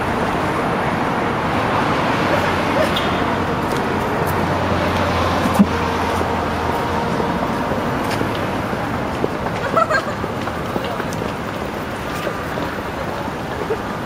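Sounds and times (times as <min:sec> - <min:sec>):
cars passing on street: 0:00.0 - 0:14.0.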